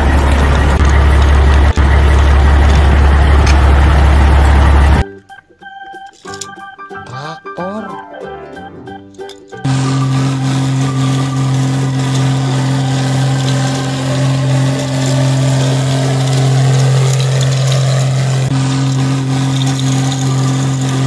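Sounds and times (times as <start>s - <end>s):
vehicle engine idling: 0.0s - 5.0s, 9.6s - 21.0s.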